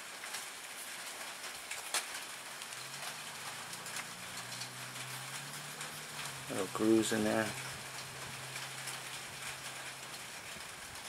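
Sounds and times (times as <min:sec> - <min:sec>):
rain hiss: 0:00.0 - 0:11.0
low steady hum: 0:02.7 - 0:11.0.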